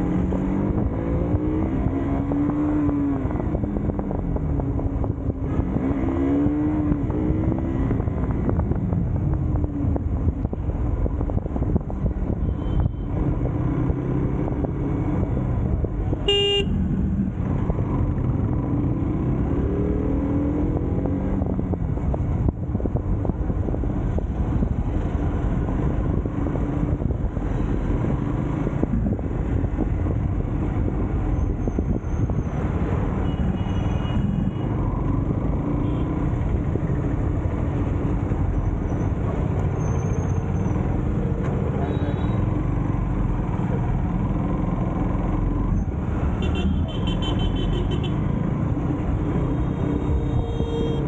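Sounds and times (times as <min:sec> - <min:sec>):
vehicle horn tooting: 0:16.3 - 0:16.8, 0:50.2 - 0:51.0.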